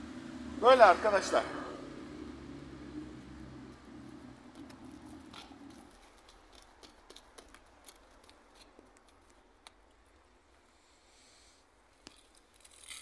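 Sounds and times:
low hum: 0.0s - 6.2s
fingers pressing soil crackles: 4.0s - 10.3s.

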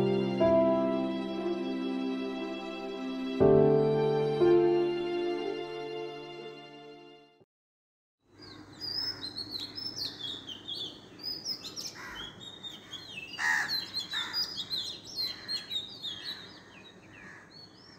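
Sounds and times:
songbirds chirping: 8.3s - 17.9s.

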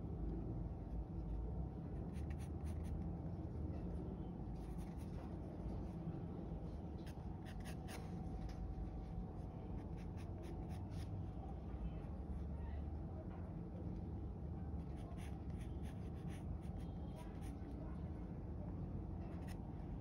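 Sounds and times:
steady low hum: 0.0s - 20.0s
pencil scratching on paper: 15.0s - 17.6s.

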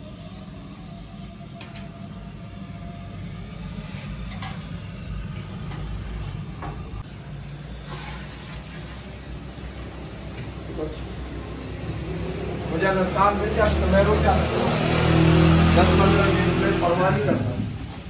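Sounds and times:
kitchen low rumble: 0.0s - 18.0s
broth pouring into pot: 7.7s - 10.0s.

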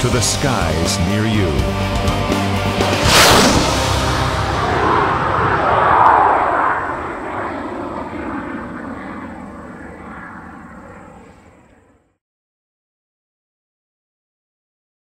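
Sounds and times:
jet passing by: 2.7s - 12.0s.

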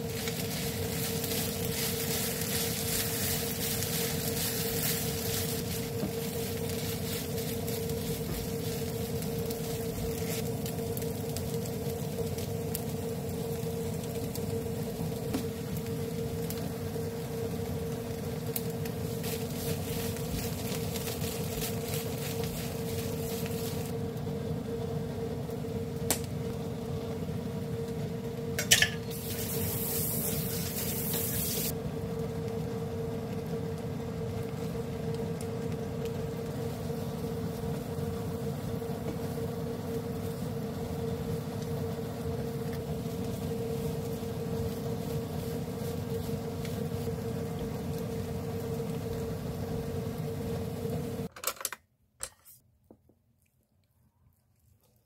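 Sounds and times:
kitchen fan hum: 0.0s - 52.6s
loud hiss: 29.1s - 31.7s.

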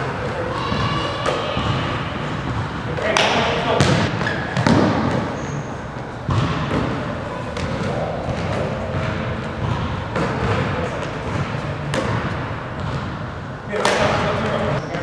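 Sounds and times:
basketball hitting rim: 0.7s - 5.5s, 6.2s - 7.0s, 7.6s - 13.2s
basketball bouncing on hardwood: 6.3s - 6.8s, 11.3s - 13.1s.

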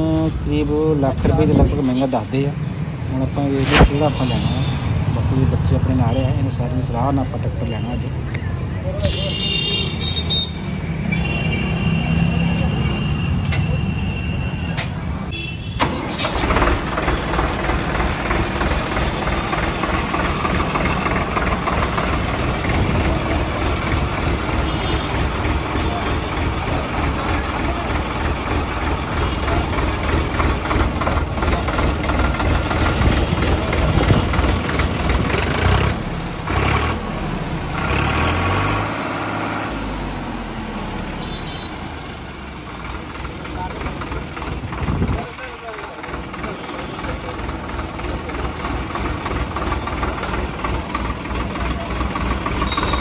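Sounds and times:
tractor diesel engine running: 15.8s - 53.0s.

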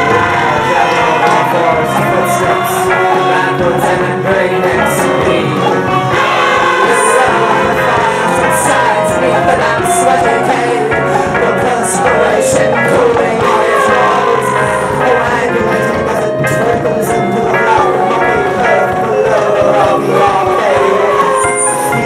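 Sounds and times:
drums: 0.0s - 22.0s
electric guitar: 0.0s - 22.0s
women singing in harmony: 0.0s - 22.0s.

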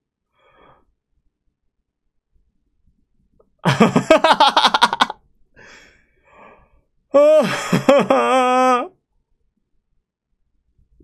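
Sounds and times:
man laughing: 3.6s - 5.2s, 7.2s - 8.9s.

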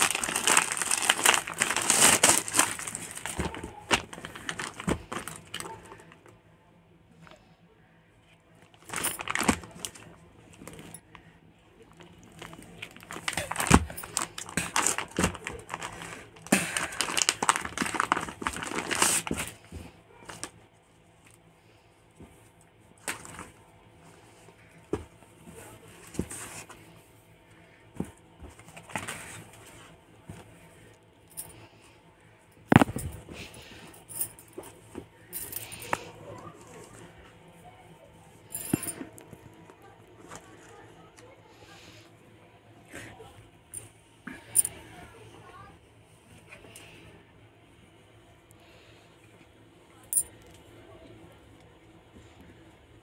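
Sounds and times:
plastic bag crinkling and rustling: 0.0s - 6.3s, 8.7s - 10.9s, 11.8s - 20.6s.

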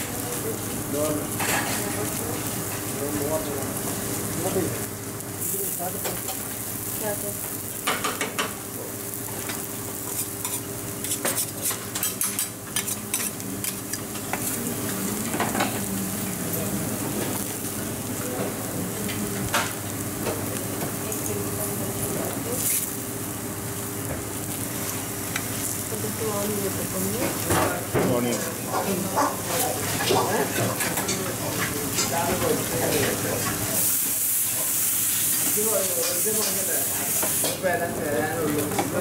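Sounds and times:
food sizzling on griddle: 0.0s - 39.0s
metal spatula scraping hotplate: 9.4s - 15.9s.

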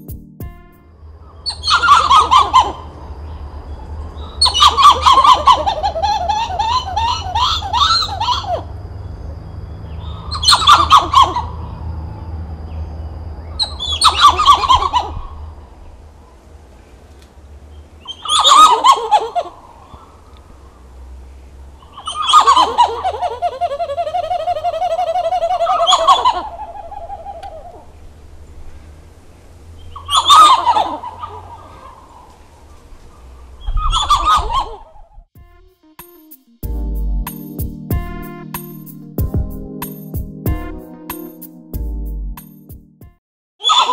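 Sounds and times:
monkey calling: 1.4s - 2.9s, 4.3s - 8.7s, 10.0s - 11.7s, 13.6s - 15.4s, 18.0s - 20.2s, 21.9s - 28.0s, 29.9s - 35.3s, 43.6s - 43.9s
loud rough monkey calls: 1.4s - 3.2s, 4.2s - 8.8s, 9.9s - 11.9s, 13.6s - 15.8s, 18.0s - 21.1s, 21.8s - 28.0s, 29.8s - 35.3s, 43.6s - 43.9s.

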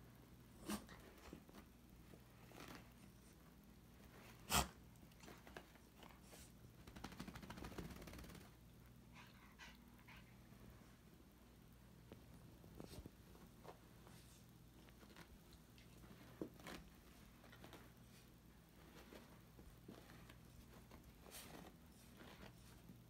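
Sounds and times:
dog scuffling on carpet: 12.0s - 23.0s.

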